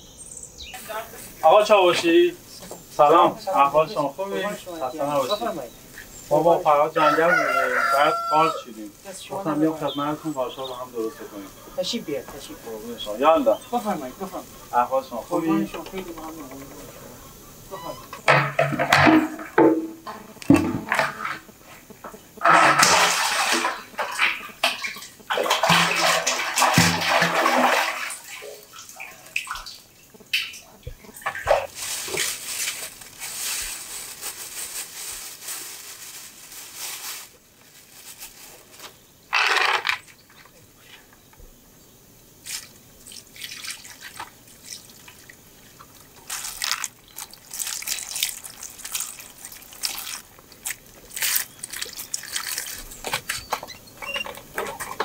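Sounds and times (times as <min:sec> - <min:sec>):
water sloshing in bucket: 0:09.1 - 0:21.5, 0:22.4 - 0:33.4, 0:42.4 - 0:55.0
water poured from bucket: 0:18.3 - 0:21.5, 0:22.4 - 0:30.6, 0:42.4 - 0:53.4.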